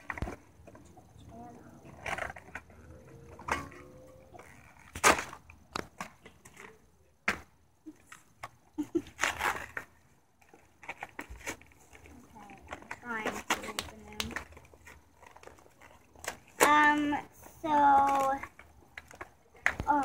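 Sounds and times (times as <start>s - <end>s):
packaging ripping and rustling: 9.1s - 17.0s.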